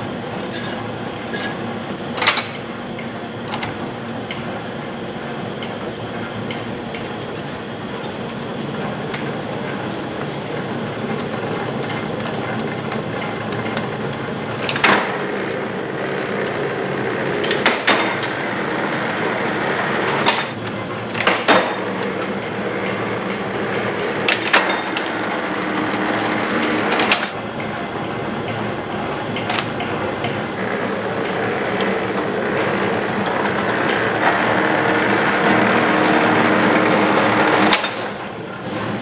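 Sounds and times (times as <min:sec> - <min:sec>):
workshop machine running: 0:00.0 - 0:39.0.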